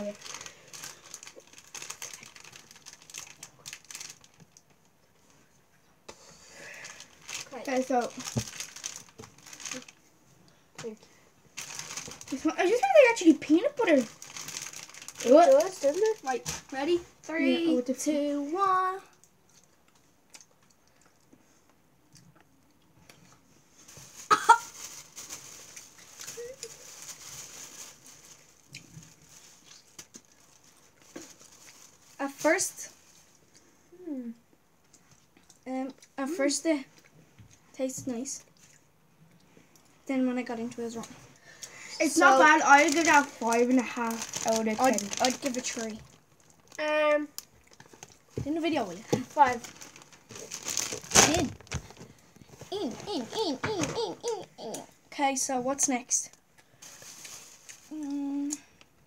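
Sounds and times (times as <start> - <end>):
plastic bag rustling: 0.0 - 4.7, 6.5 - 10.1, 10.8 - 17.8, 23.7 - 33.4, 40.9 - 54.3, 56.7 - 58.2
plastic wrapper crinkling: 0.0 - 4.9, 6.6 - 10.1, 11.6 - 17.0, 23.8 - 33.4, 40.9 - 53.3, 56.6 - 58.5
girl's wavering wordless vocal: 52.7 - 55.0.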